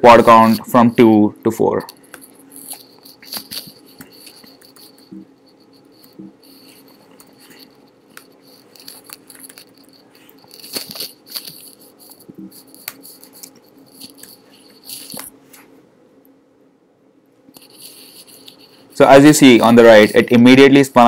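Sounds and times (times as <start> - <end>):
faint steady hum: 0.0 - 21.0
computer keyboard typing: 1.8 - 15.3.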